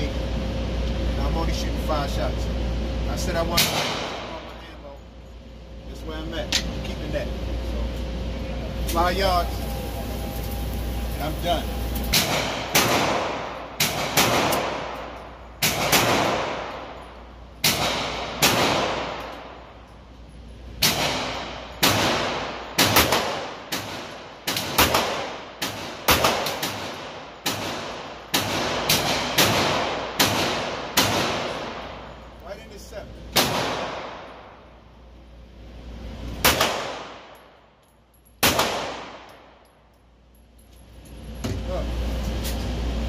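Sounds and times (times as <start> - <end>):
handgun shots echoing indoors: 12.1 - 17.0, 17.6 - 19.6, 20.8 - 32.2, 33.3 - 34.6, 36.4 - 37.6, 38.4 - 39.8.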